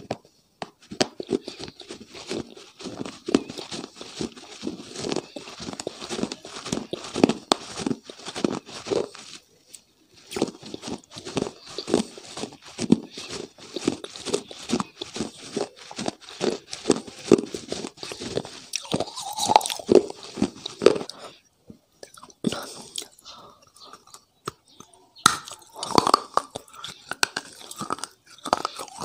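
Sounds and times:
close chewing and crunching: 0.0 - 29.0
wet mouth clicks: 18.0 - 21.2, 22.0 - 29.0.

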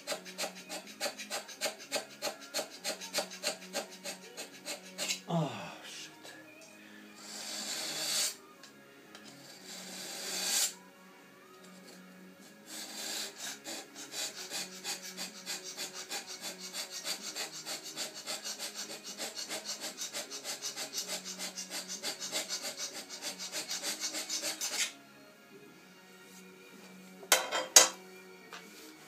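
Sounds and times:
hand scraper scraping cast iron: 0.0 - 5.3, 12.7 - 25.0.

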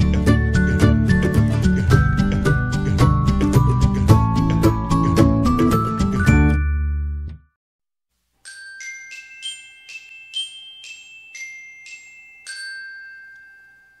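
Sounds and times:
background music: 0.0 - 7.4
bell-like logo jingle: 5.8 - 7.2, 8.4 - 14.0.

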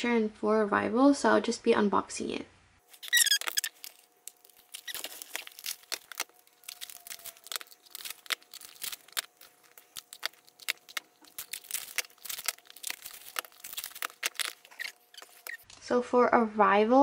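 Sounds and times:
boxes being handled: 2.9 - 15.6
plastic wrap crinkling and tearing: 2.9 - 15.6.

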